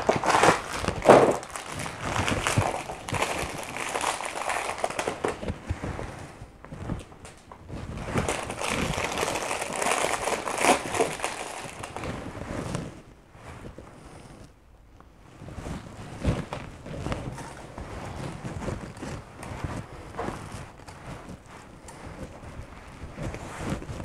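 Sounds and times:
plastic wrapper crinkling: 0:00.0 - 0:05.7, 0:07.0 - 0:12.3.

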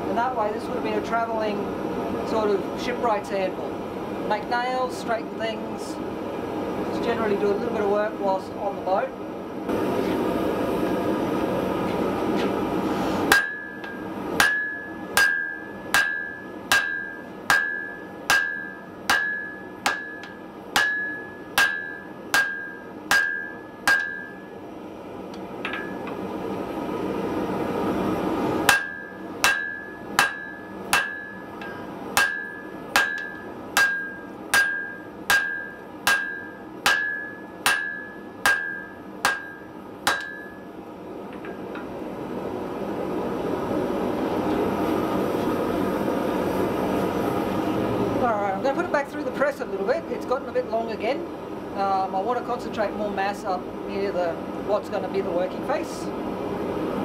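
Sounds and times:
hammer blows on anvil: 0:13.3 - 0:24.5, 0:28.6 - 0:40.6.

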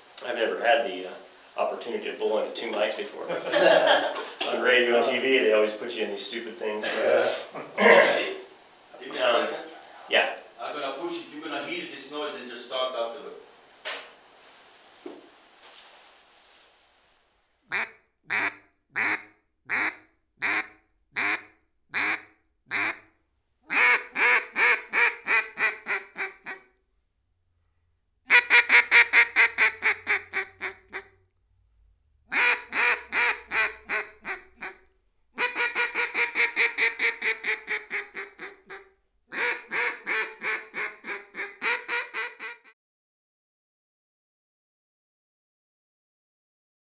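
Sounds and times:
duck call quacks: 0:17.7 - 0:23.1, 0:23.7 - 0:26.7, 0:28.3 - 0:31.1, 0:32.3 - 0:34.8, 0:35.4 - 0:42.8.

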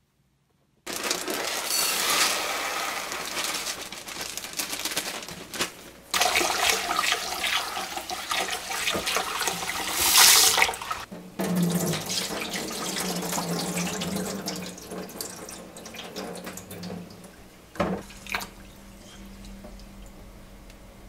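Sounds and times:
water pouring into a steel sink: 0:00.9 - 0:04.0, 0:06.2 - 0:17.4
hand swishing rice in water: 0:06.2 - 0:11.0.

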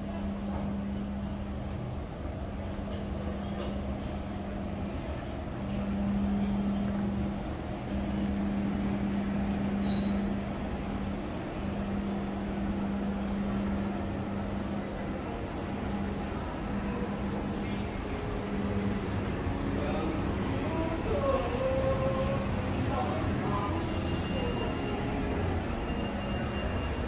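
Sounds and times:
low street rumble: 0:00.0 - 0:27.0
humming tone: 0:05.6 - 0:27.0.

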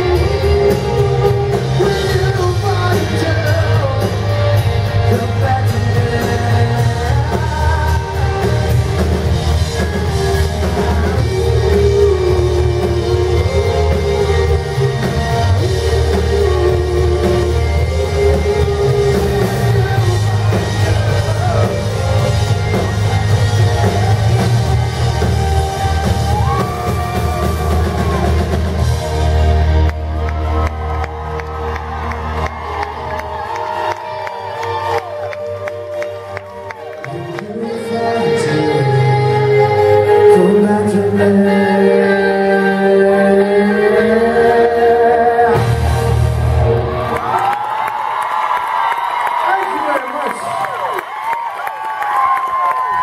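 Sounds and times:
person singing lead vocal: 0:00.0 - 0:29.2, 0:32.2 - 0:47.1
live rock band playing: 0:00.0 - 0:53.0.

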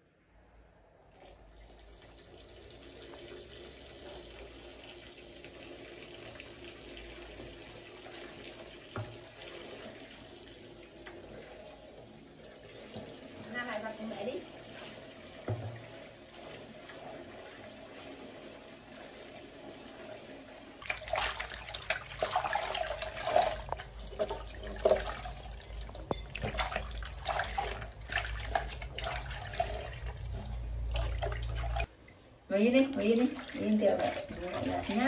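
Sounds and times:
tap water running into basin: 0:01.2 - 0:31.9, 0:32.8 - 0:35.0
water splashing: 0:20.8 - 0:32.0, 0:33.0 - 0:35.0.

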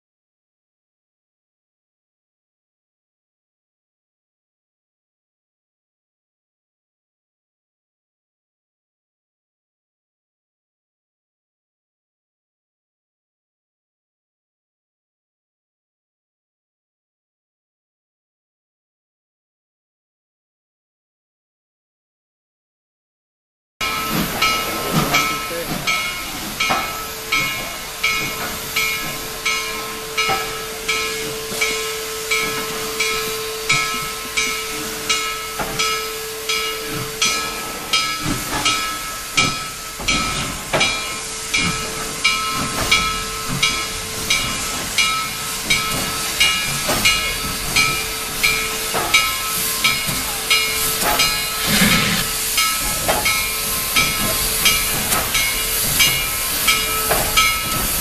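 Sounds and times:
steam hiss: 0:23.8 - 0:58.0
steam locomotive chuffing: 0:23.8 - 0:58.0.

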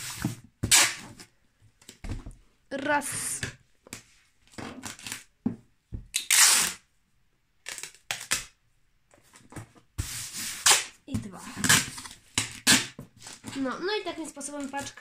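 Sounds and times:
packing tape ripping: 0:00.6 - 0:01.0, 0:06.2 - 0:06.8.

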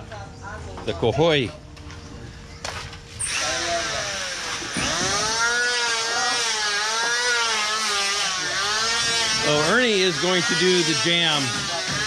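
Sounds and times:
angle grinder grinding masonry: 0:03.2 - 0:12.0.

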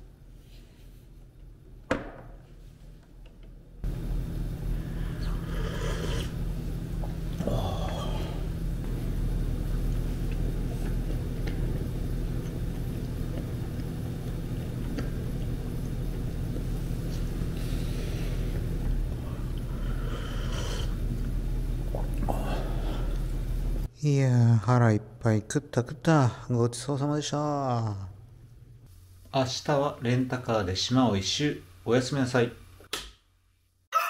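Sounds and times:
low room hum: 0:00.0 - 0:33.9
soup slurping: 0:05.1 - 0:06.4, 0:21.8 - 0:23.3.

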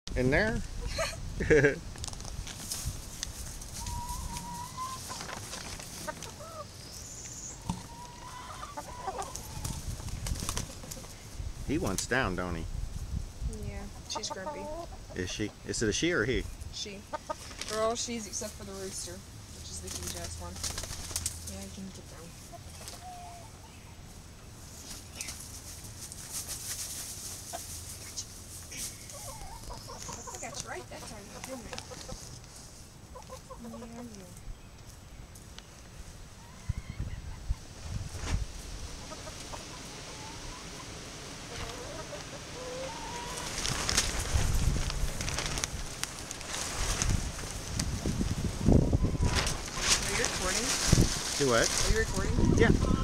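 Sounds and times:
crackling rustle: 0:01.4 - 0:13.3, 0:17.2 - 0:22.0, 0:24.6 - 0:36.2, 0:40.8 - 0:52.8
hen whining calls: 0:03.8 - 0:05.2, 0:06.3 - 0:09.8, 0:39.5 - 0:43.6
hen clucking: 0:03.8 - 0:11.2, 0:13.8 - 0:15.7, 0:16.8 - 0:18.8, 0:21.8 - 0:24.0, 0:28.8 - 0:34.4, 0:38.9 - 0:43.7, 0:51.7 - 0:53.0.

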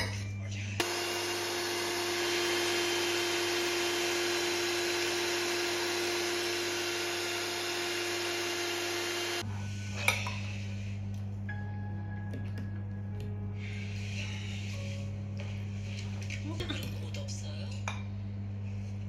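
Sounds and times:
milk frother motor whine: 0:00.8 - 0:09.5.

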